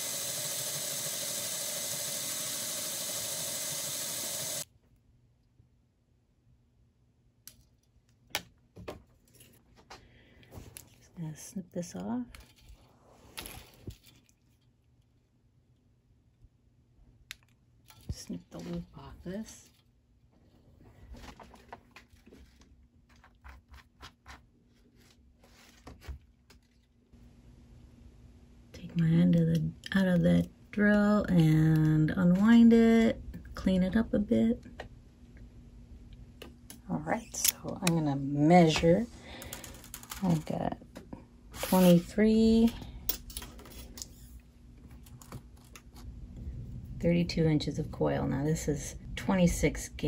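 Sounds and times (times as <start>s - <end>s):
cordless drill running: 0.0s - 4.7s.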